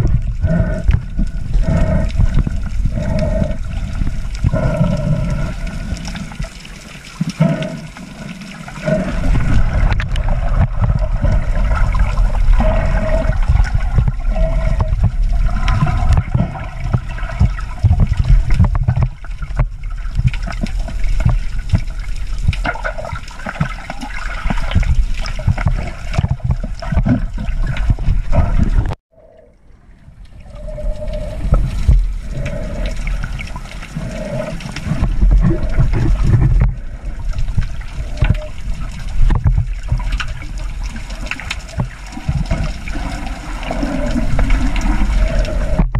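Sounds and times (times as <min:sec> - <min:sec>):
muffled underwater water rushing: 0:00.0 - 0:45.9.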